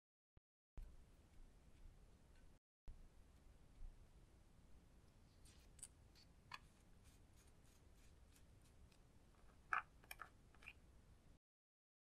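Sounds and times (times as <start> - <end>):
plastic spatula scraping and tapping: 5.5 - 6.8.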